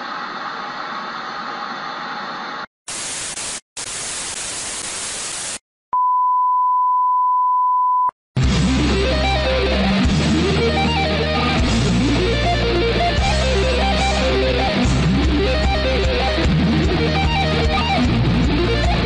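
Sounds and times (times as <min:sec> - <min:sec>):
tv static hiss: 0:00.0 - 0:05.6
rock music with electric guitar: 0:08.4 - 0:19.0.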